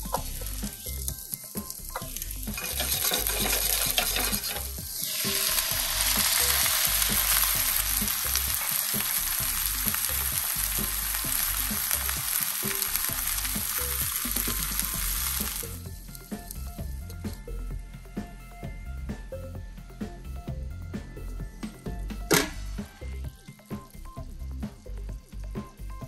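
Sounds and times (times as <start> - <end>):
water sizzling in hot skillet: 0.0 - 16.9.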